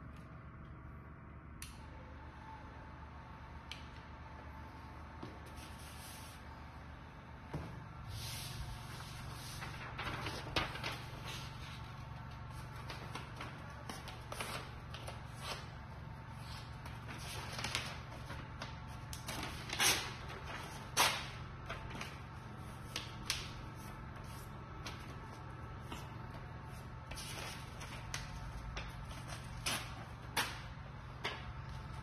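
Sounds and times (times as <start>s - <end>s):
steady low hum: 0.0s - 32.0s
paper rustling: 8.5s - 32.0s.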